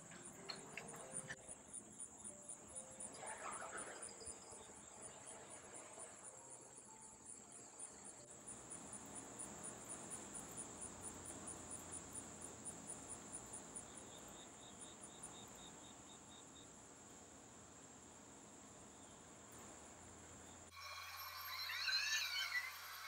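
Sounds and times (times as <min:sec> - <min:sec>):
crickets chirping: 0:00.0 - 0:23.0
lower chirping: 0:20.4 - 0:23.0.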